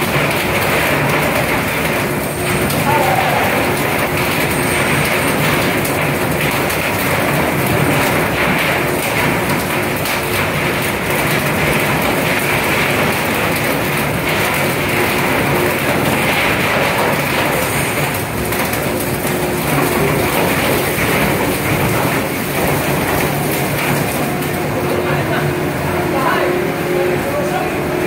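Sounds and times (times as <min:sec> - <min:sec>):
machinery rumble and hiss: 0:00.2 - 0:09.3.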